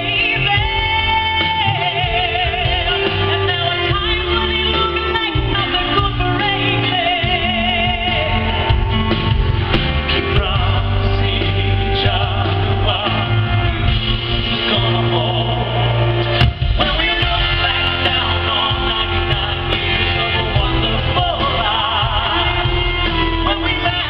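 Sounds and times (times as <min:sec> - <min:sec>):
man singing: 0:00.0 - 0:04.7, 0:05.6 - 0:09.2, 0:09.9 - 0:24.0
woman singing: 0:00.0 - 0:09.0
live band playing: 0:00.0 - 0:24.0.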